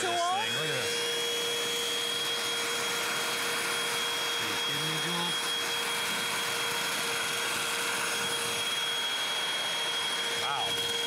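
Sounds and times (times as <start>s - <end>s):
handheld vacuum running: 0.0s - 11.0s.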